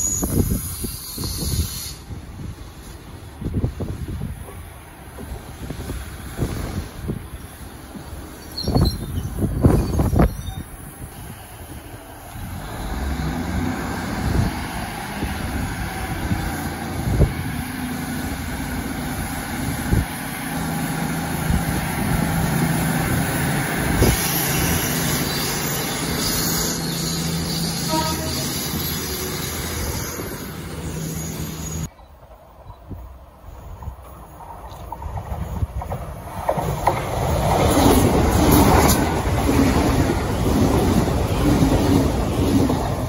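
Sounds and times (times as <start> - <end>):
diesel train engine drone: 0.0 - 43.0
train wheels thumping over rail joints: 34.0 - 43.0.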